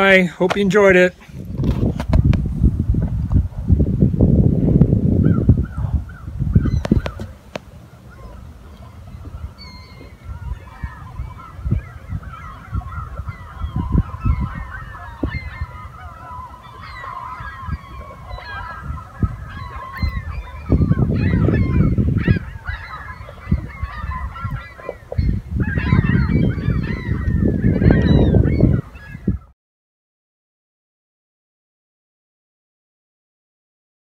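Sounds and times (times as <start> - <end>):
gulls squawking: 5.2 - 29.5.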